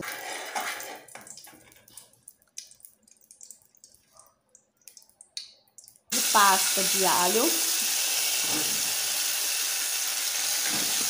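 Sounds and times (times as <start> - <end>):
fat sizzling in a pot: 6.1 - 11.0.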